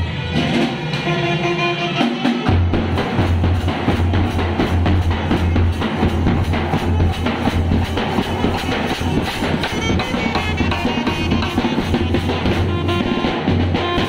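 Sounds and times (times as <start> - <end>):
bass and snare drum beat: 2.1 - 14.0
held horn notes: 4.9 - 14.0.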